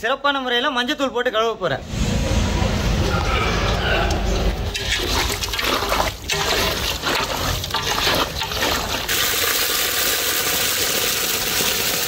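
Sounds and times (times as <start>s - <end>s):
hands mixing wet chicken: 4.7s - 9.7s
water pouring into pot: 4.7s - 12.0s.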